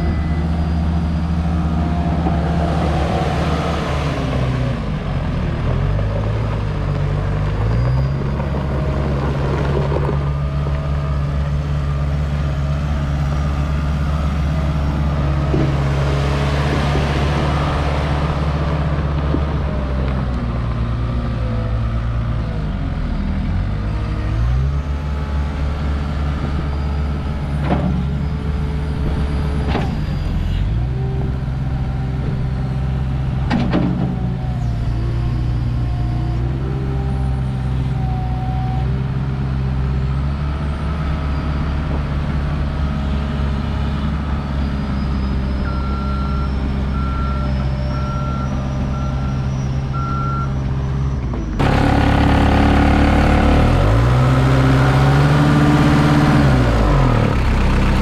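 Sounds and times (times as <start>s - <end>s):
diesel engine running under load: 0.0s - 58.0s
reversing alarm beeping: 44.8s - 51.2s.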